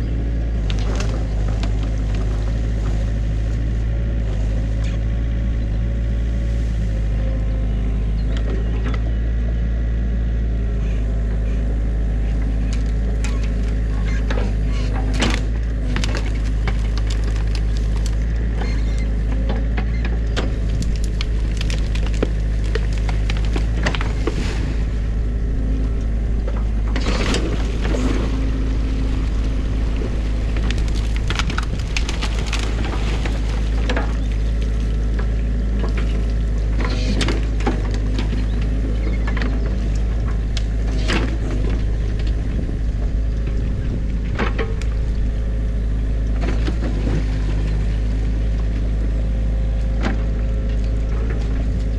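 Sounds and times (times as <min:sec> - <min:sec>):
diesel engine running: 0:00.0 - 0:51.9
sticks cracking and knocking: 0:20.4 - 0:24.5, 0:30.0 - 0:34.2
water splashing: 0:20.5 - 0:36.6.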